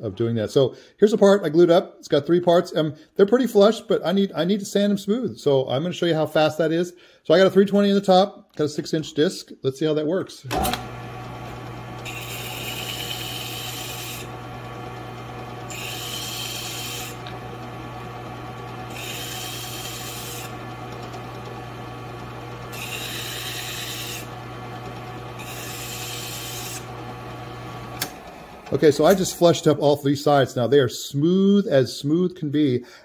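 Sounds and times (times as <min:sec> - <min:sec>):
drill press motor humming: 0:10.5 - 0:29.6.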